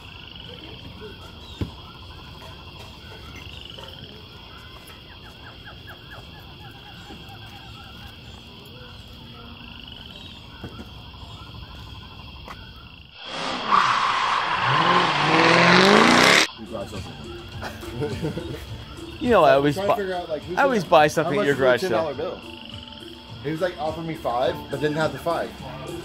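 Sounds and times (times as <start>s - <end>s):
motor vehicle passing by: 14.6s - 16.6s.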